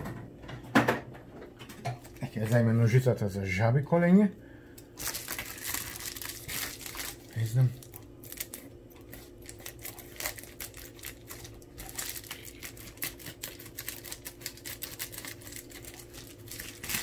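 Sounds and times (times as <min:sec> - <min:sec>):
plastic crinkling: 0:04.9 - 0:17.0.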